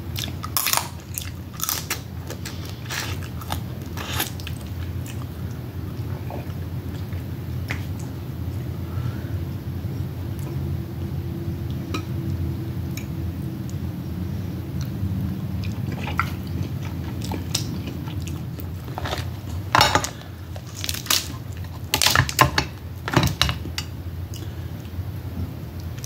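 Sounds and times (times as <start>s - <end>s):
steady low hum: 0.0s - 26.0s
crab chewing and crunching: 15.5s - 23.2s.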